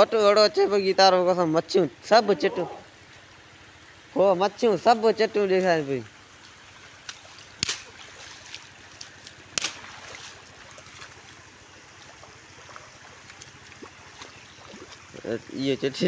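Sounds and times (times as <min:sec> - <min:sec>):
shallow water trickling over weir: 0:00.1 - 0:16.0.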